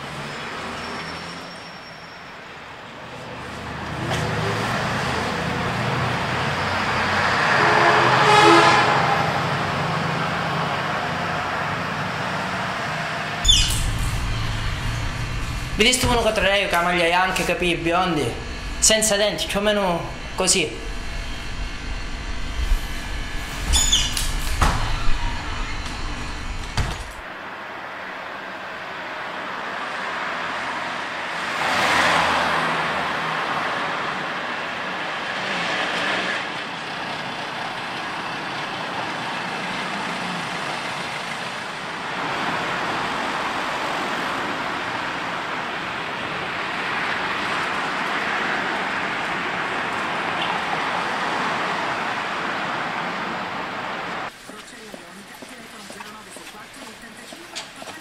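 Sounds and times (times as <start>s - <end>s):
passing vehicles hiss: 0.0s - 26.3s.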